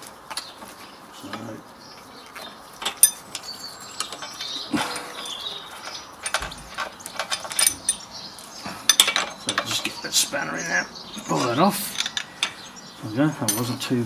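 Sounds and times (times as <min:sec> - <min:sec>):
spanner clinking on metal bolts: 0:02.8 - 0:10.1, 0:11.3 - 0:12.7, 0:13.4 - 0:13.9.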